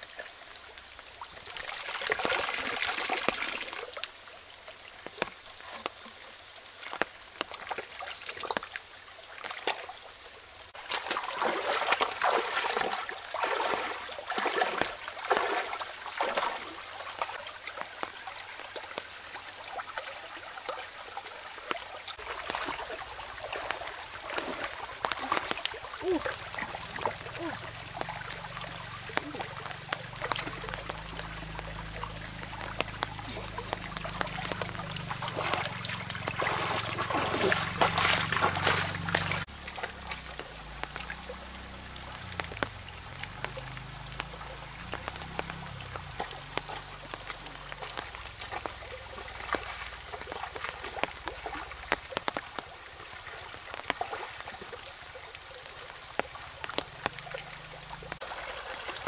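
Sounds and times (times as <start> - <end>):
shallow stream trickling over stones: 0.0 - 59.0
hands splashing in water: 10.8 - 16.8, 22.2 - 41.3.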